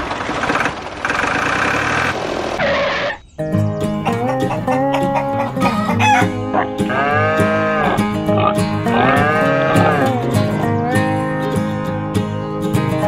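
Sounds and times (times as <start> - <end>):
background music: 3.4 - 13.0
rooster crowing: 4.0 - 8.0, 8.9 - 10.1.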